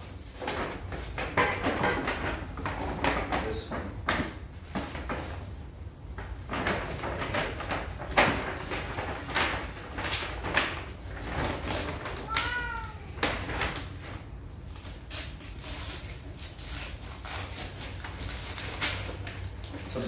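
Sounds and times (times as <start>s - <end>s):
wrapping paper rustling: 0.0s - 20.0s
cat meowing: 12.2s - 13.3s.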